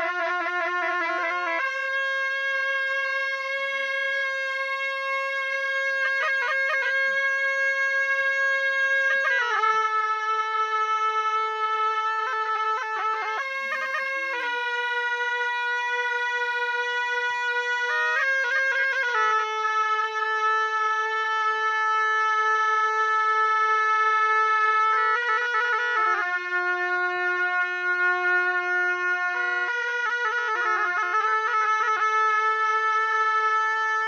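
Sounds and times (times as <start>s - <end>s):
double-reed oboes playing melody: 0.0s - 34.0s.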